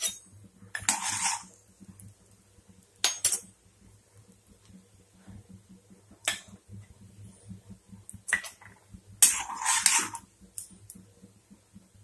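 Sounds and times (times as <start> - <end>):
metal spoon scraping a pan: 0.0 - 1.6, 8.3 - 10.7
seeds spluttering in hot oil: 0.0 - 5.2, 5.8 - 12.0.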